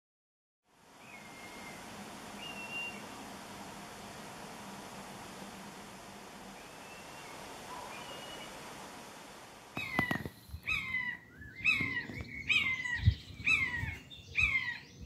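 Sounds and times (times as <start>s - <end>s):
faint hiss: 0.7s - 10.8s
buzzard mewing call: 9.8s - 14.8s.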